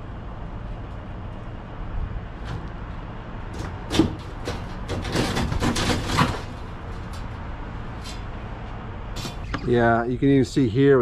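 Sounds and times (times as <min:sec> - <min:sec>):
sheet-metal cabinet clicks and knocks: 0:03.6 - 0:06.6
rattling metal clatter: 0:03.6 - 0:07.3
steady low rumble: 0:06.6 - 0:11.0.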